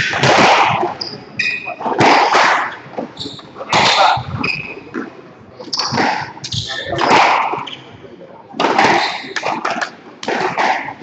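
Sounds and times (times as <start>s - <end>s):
shoes squeaking on wooden floor: 3.0s - 5.0s.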